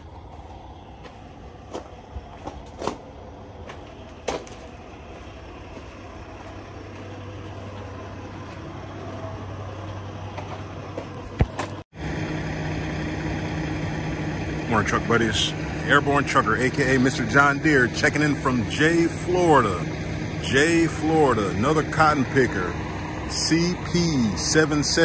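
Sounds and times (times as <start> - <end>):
footsteps on concrete: 0.0 - 11.8
engine idling: 0.0 - 25.0
low engine hum: 0.0 - 25.0.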